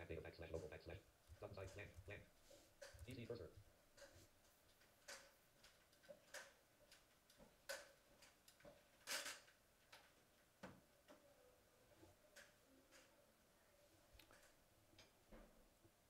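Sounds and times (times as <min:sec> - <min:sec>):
faint irregular clicks: 0:03.9 - 0:11.3, 0:12.1 - 0:13.2, 0:14.1 - 0:16.0.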